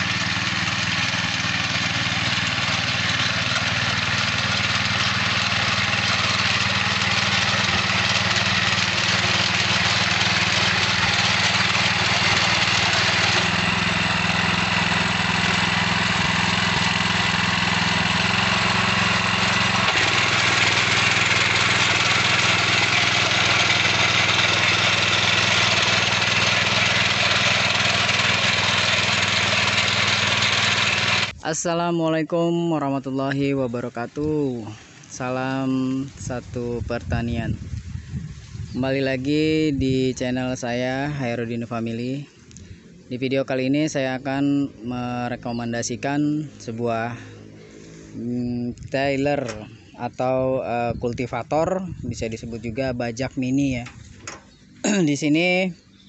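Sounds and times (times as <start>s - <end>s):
small petrol engine running: 0.0s - 31.4s, 34.3s - 36.5s, 45.3s - 50.2s, 53.7s - 55.1s, 55.7s - 56.0s
tines churning soil: 0.0s - 31.4s, 33.6s - 43.0s, 44.9s - 56.0s.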